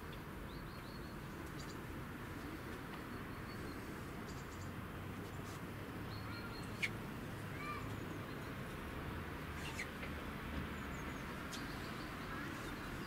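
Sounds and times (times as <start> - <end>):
distant city hum: 0.0 - 13.0
faint high bird chirps: 6.1 - 7.0.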